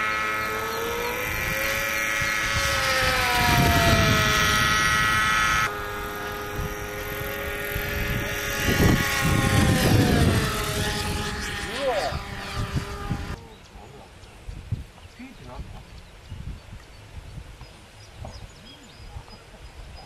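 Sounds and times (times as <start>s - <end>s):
rc airplane engine whining: 0.0s - 13.4s
low rumbling bursts: 0.0s - 17.4s.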